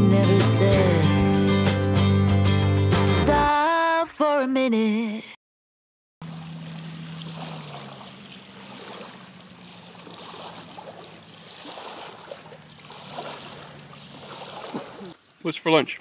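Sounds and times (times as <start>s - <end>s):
low steady hum: 6.2s - 15.2s
small waves lapping on rocks: 6.2s - 15.2s
wind: 6.2s - 16.0s.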